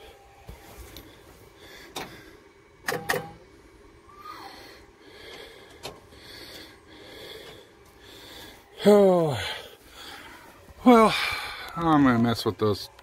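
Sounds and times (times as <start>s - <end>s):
soft breathing: 0.0s - 2.7s, 3.7s - 11.8s
sharp clicks and knocks: 2.8s - 3.4s.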